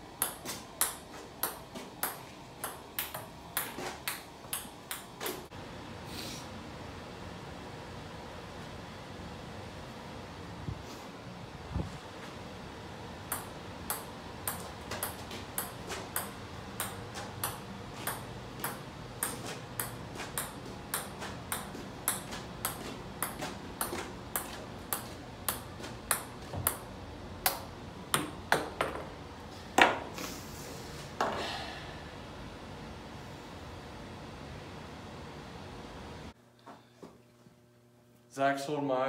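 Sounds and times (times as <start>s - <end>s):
ping pong ball tapping on club: 0.2s - 5.1s, 13.3s - 26.8s.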